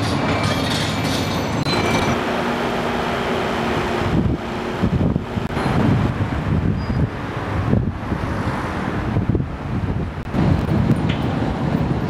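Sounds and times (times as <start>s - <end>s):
diesel engine drone: 0.0s - 12.0s
wind buffeting microphone: 3.3s - 12.0s.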